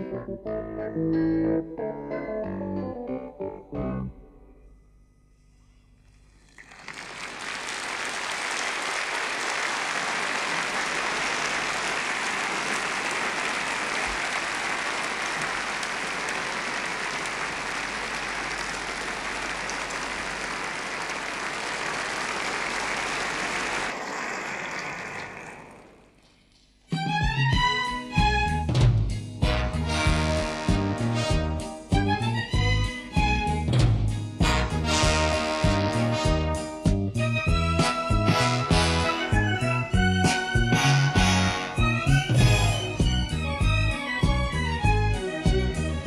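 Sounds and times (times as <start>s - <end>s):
large audience applauding: 6.4s - 26.2s.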